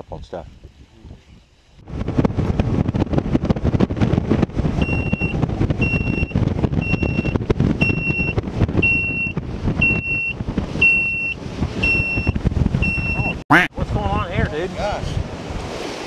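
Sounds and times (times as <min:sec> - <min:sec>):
boat engine rumble: 0:00.0 - 0:16.0
wind noise: 0:00.0 - 0:16.0
electronic alarm beeping: 0:04.8 - 0:13.5.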